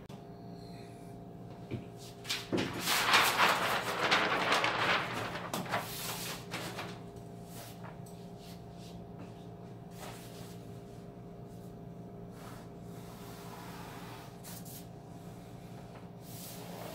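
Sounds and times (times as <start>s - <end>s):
paper rustling and crinkling: 2.1s - 8.0s
low steady hum: 3.0s - 16.7s.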